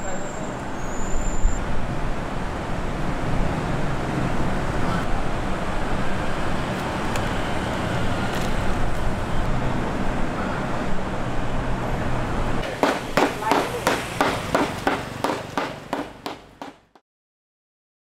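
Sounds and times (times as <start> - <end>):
traffic noise: 0.0 - 17.0.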